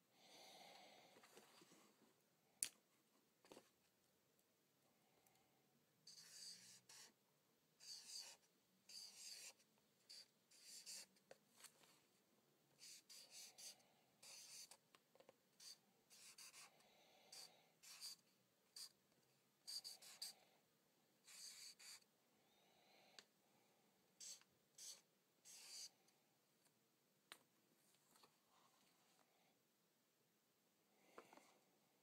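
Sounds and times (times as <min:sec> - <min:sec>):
marker strokes on paper: 0:06.1 - 0:07.2, 0:07.8 - 0:11.2, 0:12.8 - 0:14.8, 0:15.6 - 0:19.0, 0:19.6 - 0:20.4, 0:21.2 - 0:22.1, 0:24.2 - 0:25.9.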